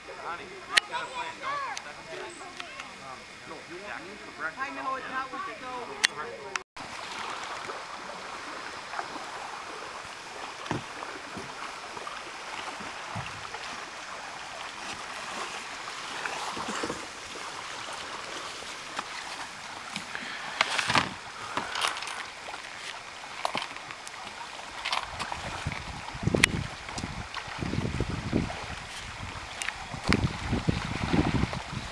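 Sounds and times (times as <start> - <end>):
outdoor hiss: 0.0 - 31.9
plastic kayaks knocking on rocks: 10.6 - 11.6, 18.8 - 31.7.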